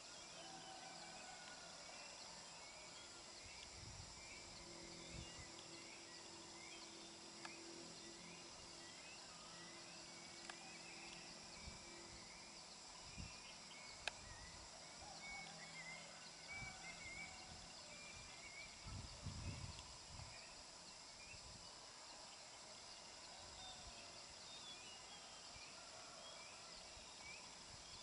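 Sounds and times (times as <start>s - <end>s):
insects chirping: 0.0s - 28.0s
insects droning: 0.0s - 28.0s
faint clicks: 10.4s - 11.3s, 14.0s - 14.2s.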